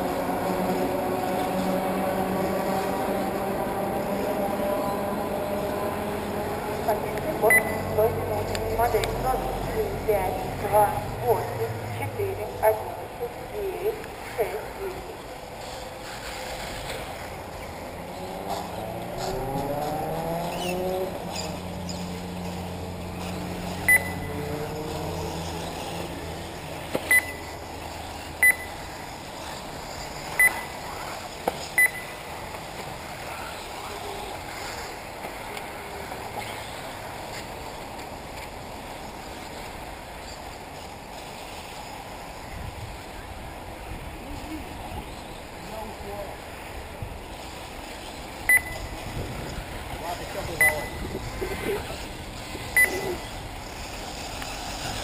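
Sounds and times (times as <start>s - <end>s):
rc car motors whining: 15.5s - 31.8s.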